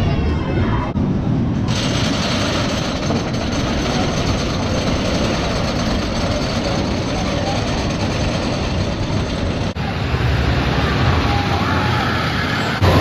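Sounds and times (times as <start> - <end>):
roller coaster rumbling on wooden track: 0.1 - 13.0.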